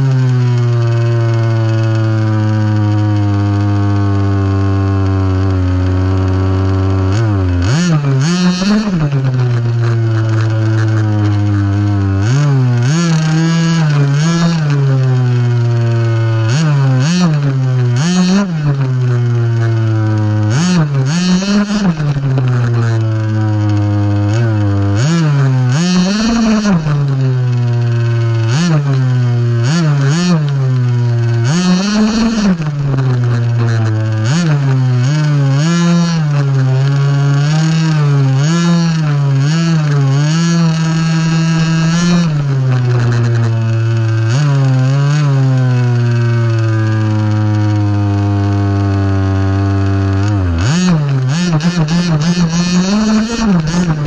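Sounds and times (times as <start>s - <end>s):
rc buggy motor humming: 0.0s - 54.0s.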